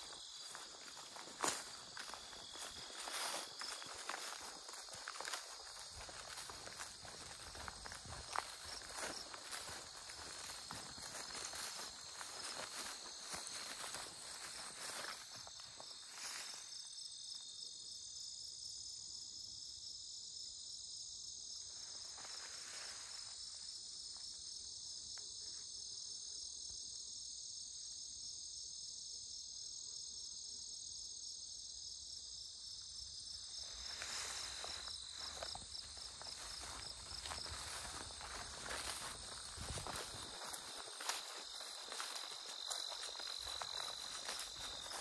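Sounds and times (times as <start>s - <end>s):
footsteps swishing through grass: 0.0s - 16.7s, 33.7s - 45.0s
insects trilling: 0.0s - 18.8s, 31.6s - 45.0s.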